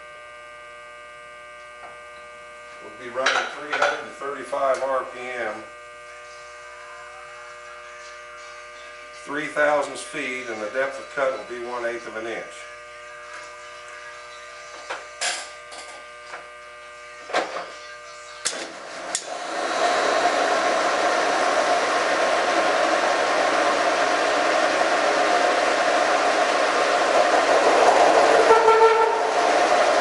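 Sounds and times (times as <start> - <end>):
boring mill humming: 0.0 - 30.0
metal cutting noise: 18.5 - 30.0.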